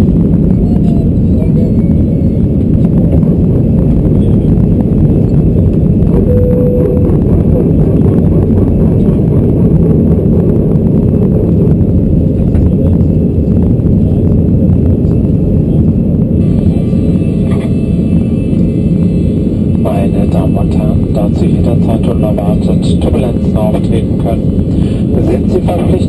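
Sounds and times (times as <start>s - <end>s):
airplane cabin engine roar: 0.0s - 26.0s.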